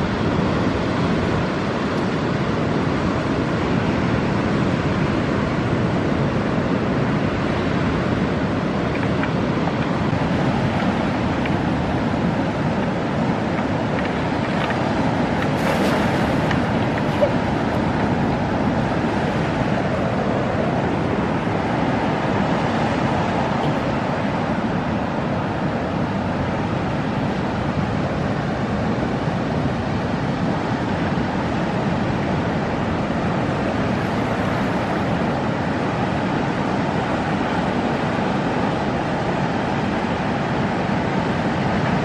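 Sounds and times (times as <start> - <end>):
water waves: 0.0 - 42.0
wind: 0.0 - 42.0
wind buffeting microphone: 7.9 - 40.0
water splash: 13.7 - 19.2.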